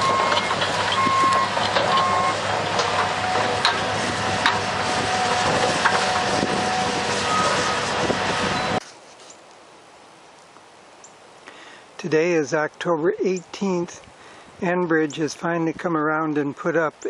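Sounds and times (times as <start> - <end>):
backup alarm beeping: 0.0 - 2.4, 8.5 - 8.8
diesel machinery running: 0.0 - 8.8
steady whine: 0.0 - 8.8.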